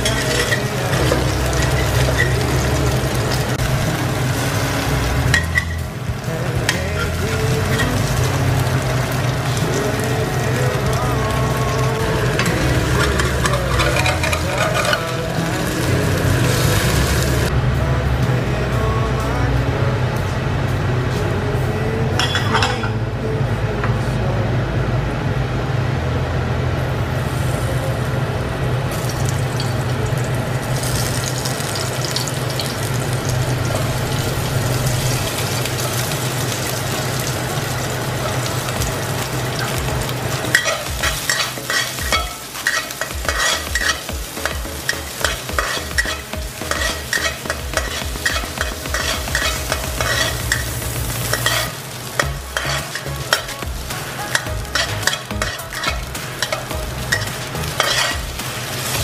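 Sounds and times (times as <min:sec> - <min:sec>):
spatula scraping a wok: 0:00.0 - 0:05.9, 0:12.3 - 0:17.5, 0:33.7 - 0:59.0
garlic sizzling in hot oil: 0:00.0 - 0:17.5, 0:28.9 - 0:59.0
low hum: 0:00.0 - 0:59.0.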